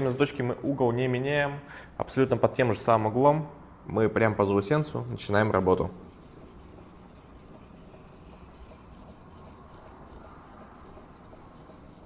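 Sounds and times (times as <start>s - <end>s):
sharpening stone rubbing on steel: 4.8s - 12.0s.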